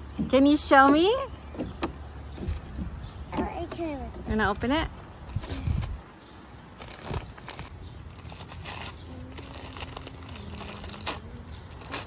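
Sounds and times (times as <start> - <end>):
wrapping paper crinkling: 6.8 - 12.0.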